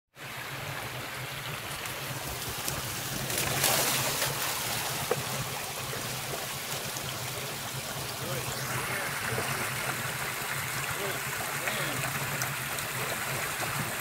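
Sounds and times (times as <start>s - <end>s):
creek water running over rocks: 0.1s - 14.0s
dog paws splashing: 1.7s - 6.9s.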